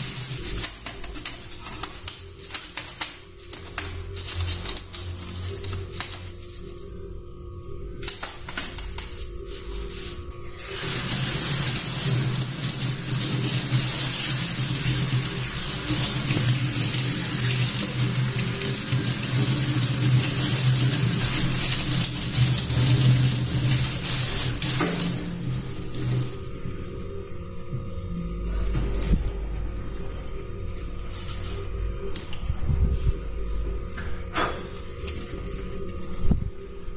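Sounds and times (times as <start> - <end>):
toothbrush scrubbing: 0.0 - 6.7, 8.2 - 26.4
faucet water splashing: 10.6 - 26.4.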